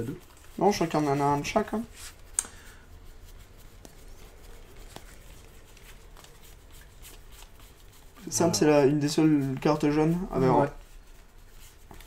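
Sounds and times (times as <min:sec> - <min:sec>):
handling of trading cards: 0:00.0 - 0:12.0.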